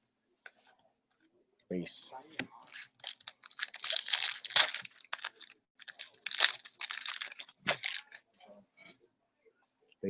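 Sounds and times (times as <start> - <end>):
foil pack tearing and crinkling: 2.7 - 8.2.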